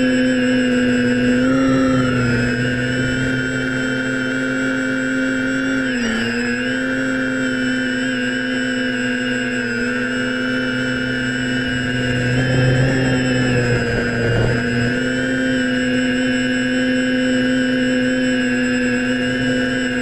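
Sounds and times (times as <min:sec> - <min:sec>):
drone motors and propellers: 0:00.0 - 0:20.0.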